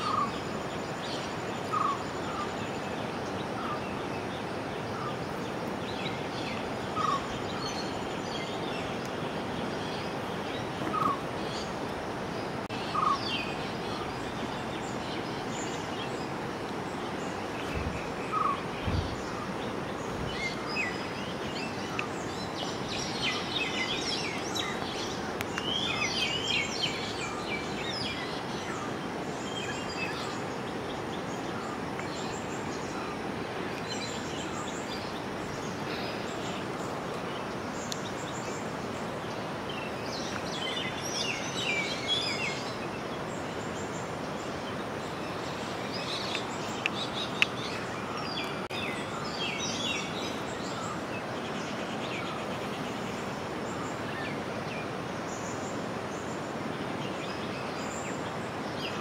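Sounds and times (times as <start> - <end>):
birds twittering: 0.0 - 59.0
steady outdoor hiss: 0.0 - 59.0.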